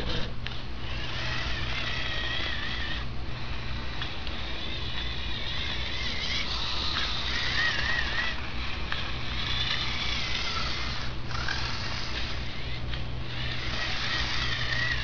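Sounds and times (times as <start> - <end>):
toy motor and gears whining: 0.0 - 15.0.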